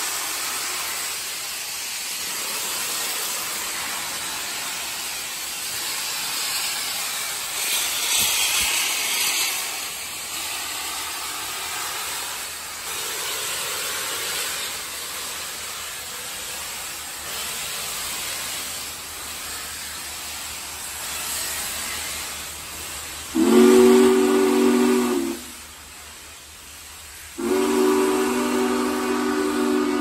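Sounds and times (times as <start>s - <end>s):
steam hissing from locomotive: 0.0s - 30.0s
steam whistle blast: 23.3s - 25.6s, 27.4s - 30.0s.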